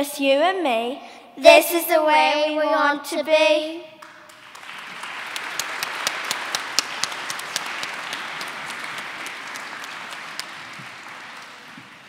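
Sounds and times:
audience applauding: 0:04.0 - 0:12.0.

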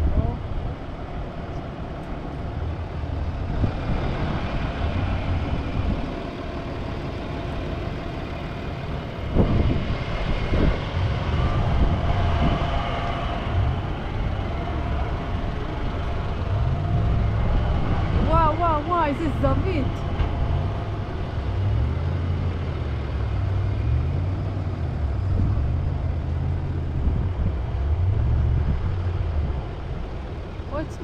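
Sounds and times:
off-road vehicle engine rumble: 0:00.0 - 0:31.0.

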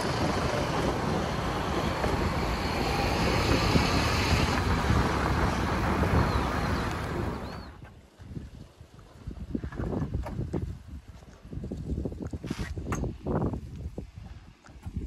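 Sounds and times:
low rumbles: 0:00.0 - 0:07.8
steady rushing noise: 0:00.0 - 0:07.8
wind buffeting microphone: 0:00.0 - 0:15.0.

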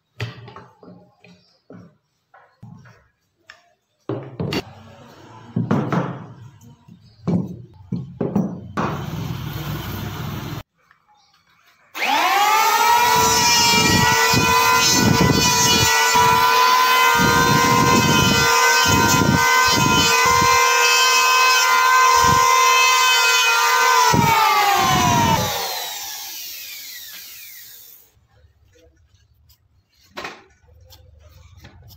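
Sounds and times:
electric hand planer whine: 0:12.0 - 0:28.0.

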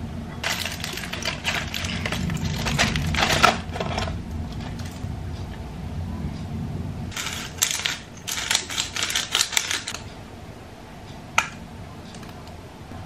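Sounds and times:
crackly rustles and squelches: 0:00.3 - 0:10.2.

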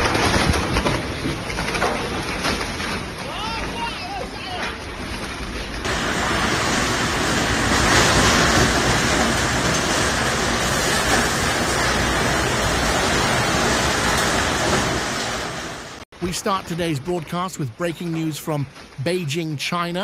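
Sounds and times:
strong wind rushing: 0:05.8 - 0:16.0.

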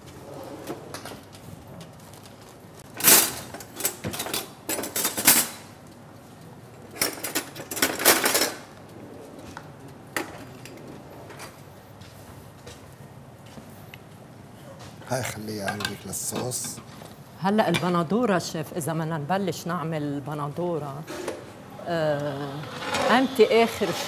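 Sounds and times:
utensils clattering against pots: 0:02.9 - 0:05.7, 0:06.9 - 0:08.7, 0:15.6 - 0:17.0.

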